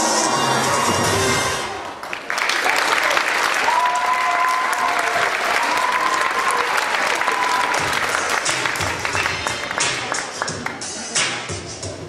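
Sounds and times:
audience applauding: 1.7s - 11.0s.

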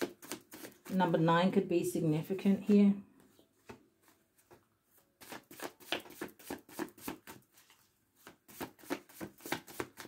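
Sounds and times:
cards being shuffled: 0.0s - 1.0s, 5.2s - 10.0s.

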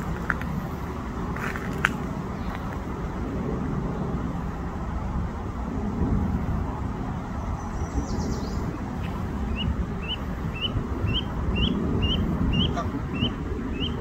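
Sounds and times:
low rumble of road traffic: 0.0s - 14.0s
gosling peeping: 9.0s - 14.0s.

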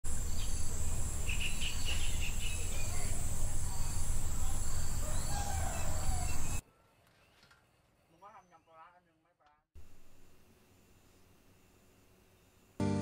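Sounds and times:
high buzz of insects: 0.1s - 6.6s.

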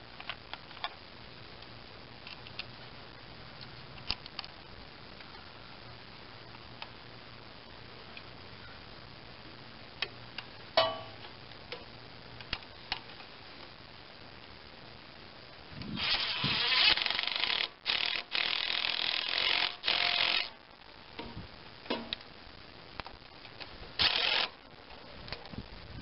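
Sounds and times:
impact driver running bolts: 16.0s - 20.5s, 24.0s - 24.5s.

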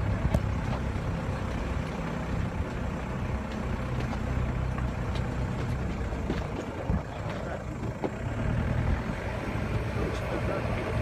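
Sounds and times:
diesel engine low hum: 0.0s - 11.0s
faint knocks from rough ground: 3.4s - 8.3s.

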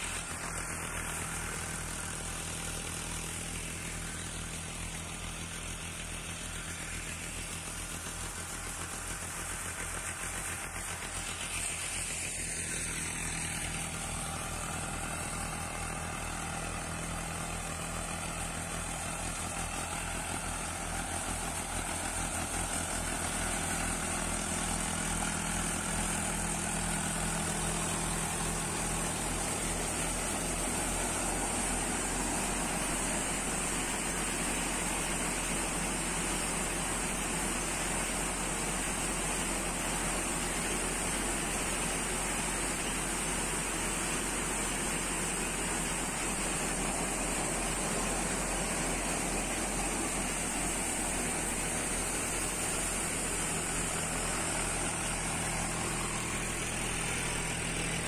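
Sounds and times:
diesel tractor engine running: 0.0s - 58.0s
thresher whirring: 18.3s - 58.0s
steady high hiss: 25.2s - 58.0s.

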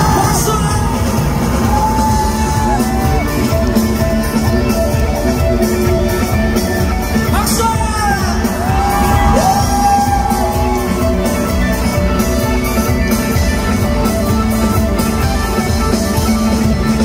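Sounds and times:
shouting: 0.0s - 3.8s
loud live band music: 0.0s - 17.0s.

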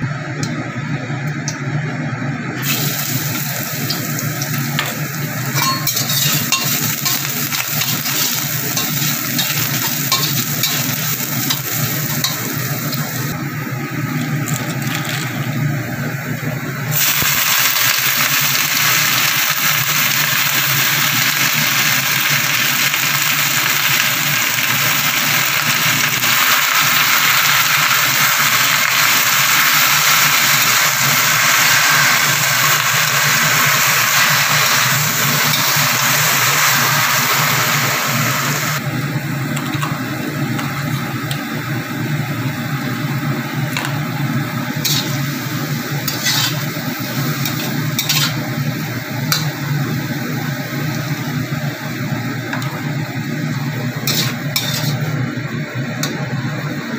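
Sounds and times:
greens sizzling in a wok: 2.6s - 13.4s, 16.9s - 38.9s, 39.5s - 56.9s
spatula tapping wok: 5.6s - 10.9s.

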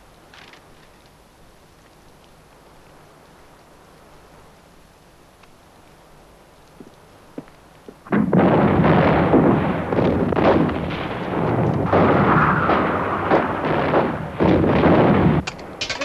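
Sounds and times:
artillery shell bursts: 8.1s - 16.0s
gunfire: 8.1s - 16.0s
heavy blasts: 8.1s - 16.0s.

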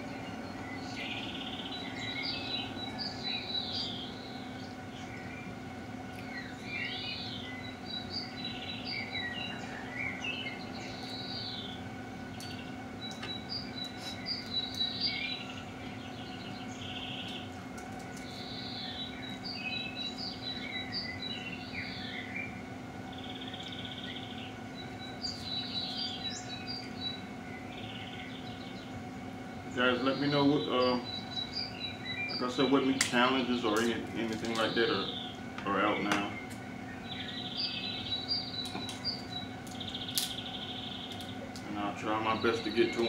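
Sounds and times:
songbirds singing: 0.0s - 43.0s
steady low hum: 0.0s - 43.0s.

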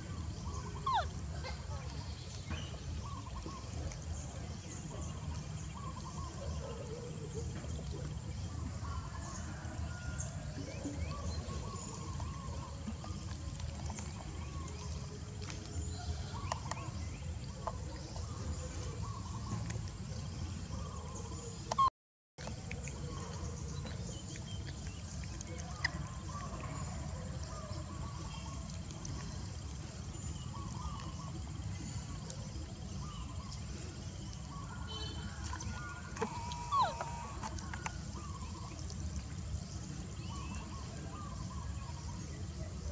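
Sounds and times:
animal calls and chirping: 0.4s - 2.0s, 35.7s - 38.5s
chirping calls and clicks: 21.6s - 21.9s.

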